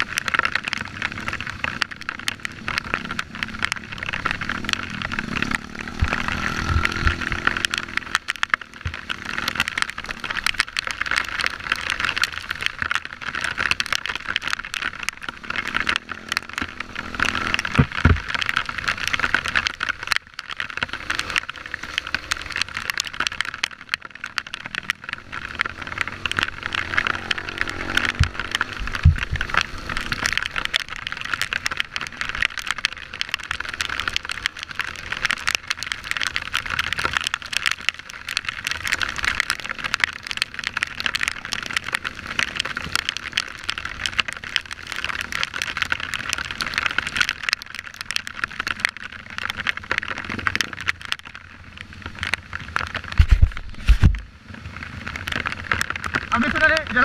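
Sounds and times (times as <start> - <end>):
crackling hiss: 0.0 - 57.0
dirt bike engine running: 0.8 - 10.3, 23.2 - 32.0.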